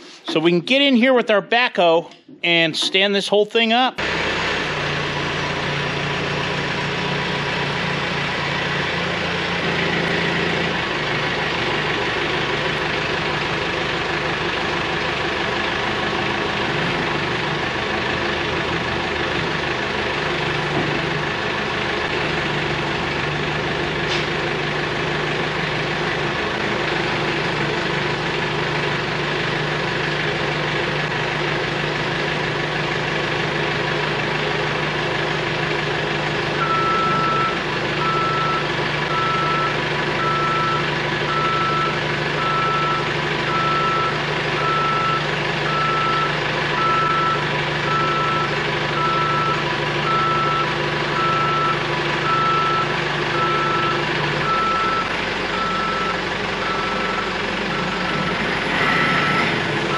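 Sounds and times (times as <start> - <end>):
diesel engine running at low revs: 3.9 - 59.9.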